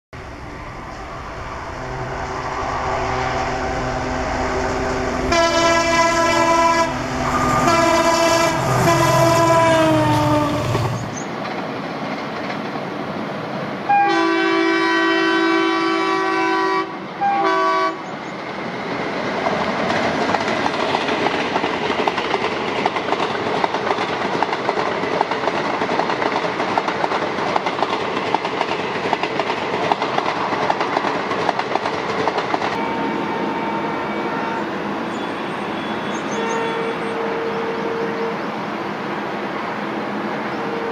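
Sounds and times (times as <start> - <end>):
diesel locomotive engine drone: 0.2 - 40.9
locomotive horn blasts: 1.7 - 10.9, 13.9 - 18.0, 32.8 - 38.4, 40.6 - 40.9
train wheels clacking over rail joints: 19.4 - 33.0.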